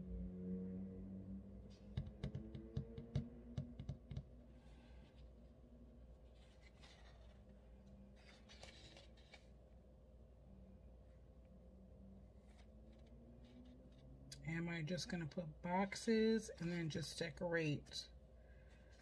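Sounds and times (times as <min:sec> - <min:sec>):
paper pages rustling: 0:06.2 - 0:09.6.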